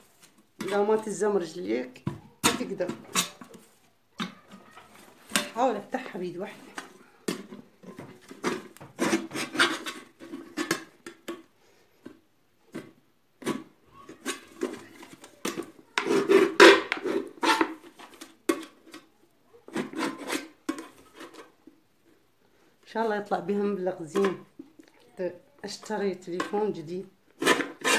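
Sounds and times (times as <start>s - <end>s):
knife scraping thin metal lid: 8.4s - 10.9s, 16.0s - 18.8s, 19.7s - 21.5s, 27.4s - 27.9s.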